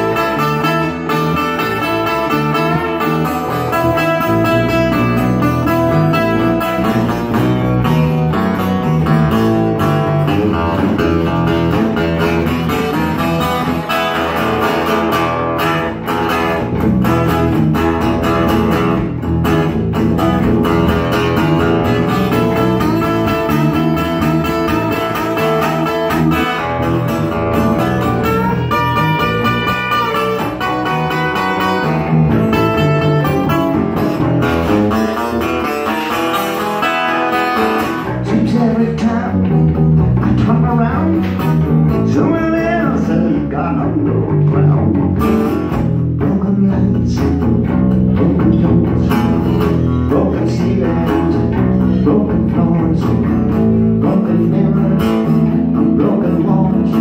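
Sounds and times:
amplified acoustic guitar: 0.0s - 57.0s
electric bass guitar: 0.0s - 57.0s.

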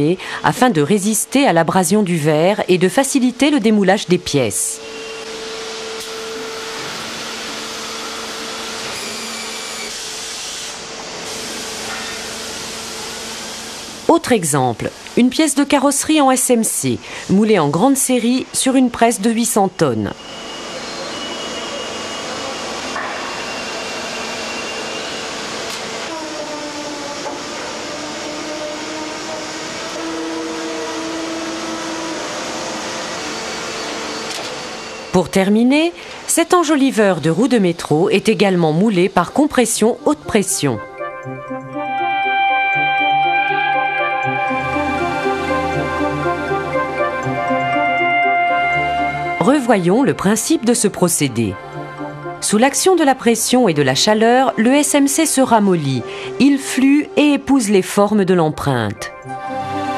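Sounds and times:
moulding press machinery hum: 3.2s - 14.2s, 20.1s - 37.6s, 42.5s - 50.6s
machine hiss: 4.8s - 14.1s.

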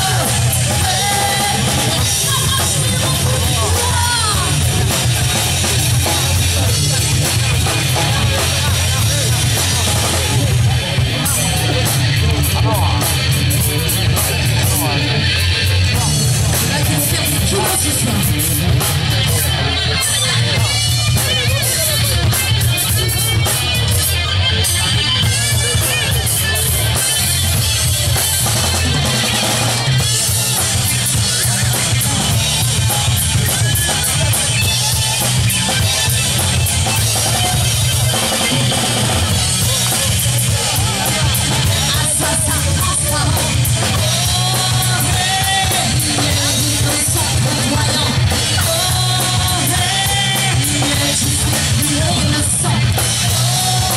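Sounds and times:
person singing: 0.0s - 6.9s, 31.0s - 53.9s
live rock band playing: 0.0s - 53.9s.

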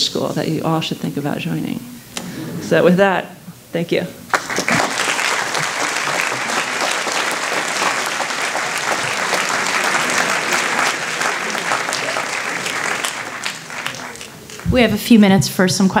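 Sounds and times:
audience applause: 4.3s - 15.0s.

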